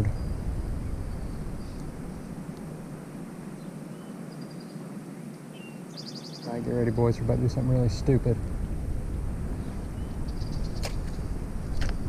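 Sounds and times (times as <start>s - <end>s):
low rumble: 0.0s - 3.6s, 6.6s - 12.0s
steady hiss: 0.0s - 12.0s
faint high bird trill: 3.5s - 7.0s, 9.6s - 11.8s.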